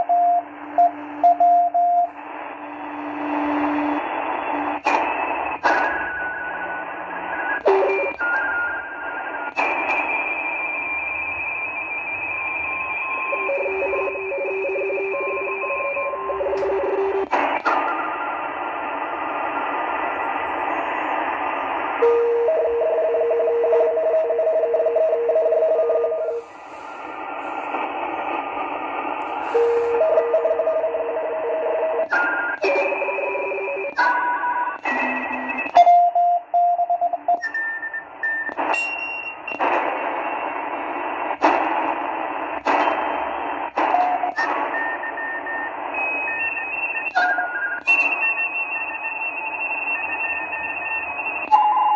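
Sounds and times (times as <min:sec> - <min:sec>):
beeping digital signal tones: 0:00.0 - 0:02.2, 0:12.8 - 0:17.3
radio tuning clicks: 0:00.0 - 0:06.6, 0:15.1 - 0:20.1, 0:26.2 - 0:30.8, 0:38.0 - 0:46.0
radio band noise hiss: 0:00.0 - 0:11.4, 0:12.3 - 0:35.8, 0:38.0 - 0:51.9.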